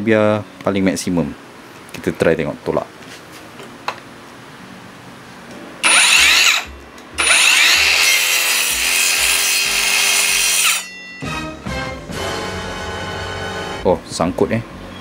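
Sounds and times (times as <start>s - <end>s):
circular saw cutting wood: 5.8s - 10.9s.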